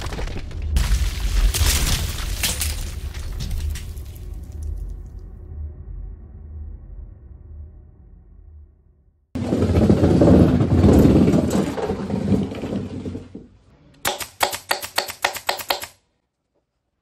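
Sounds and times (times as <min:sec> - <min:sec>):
staple gun firing clacks: 0:14.0 - 0:16.0.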